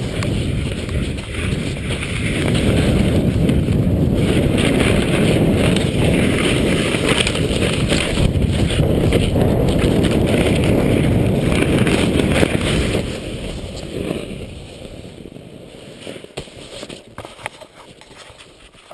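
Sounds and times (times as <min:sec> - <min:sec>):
wind rushing on microphone: 0:00.0 - 0:15.5
board hissing through snow: 0:00.0 - 0:18.9
faint crunches and clicks: 0:11.4 - 0:18.9.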